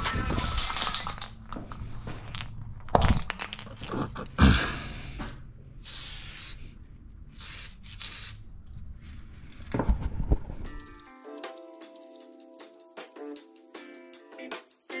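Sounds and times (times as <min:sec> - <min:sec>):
spray paint can hissing: 0:05.8 - 0:06.7, 0:07.4 - 0:08.4.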